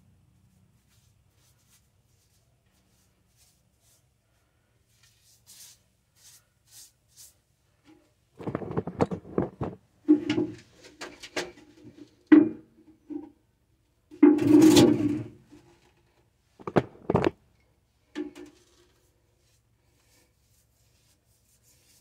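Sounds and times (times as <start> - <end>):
paintbrush strokes on wall: 0.3 - 7.8, 18.6 - 22.0
knocks and scrapes: 7.8 - 13.3, 14.2 - 15.6, 16.6 - 17.4.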